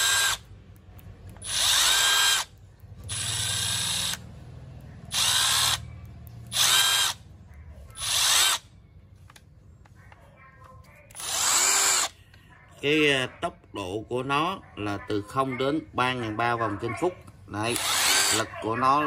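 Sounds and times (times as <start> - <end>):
impact driver whining: 0.0 - 0.5, 1.3 - 4.4, 5.0 - 7.3, 8.0 - 8.7, 11.2 - 12.1, 17.7 - 18.5.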